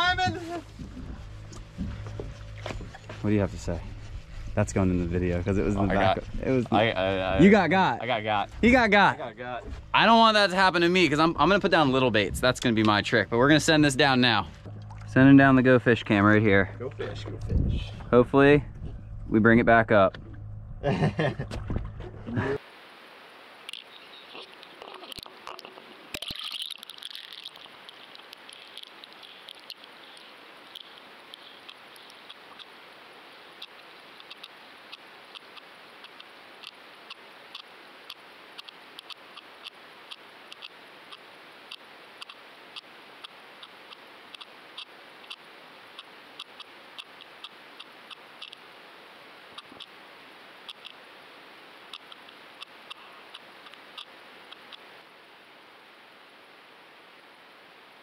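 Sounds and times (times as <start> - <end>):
sharp underwater clicks: 23.6 - 32.8, 33.5 - 48.7, 49.5 - 50.0, 50.6 - 51.0, 51.8 - 54.9.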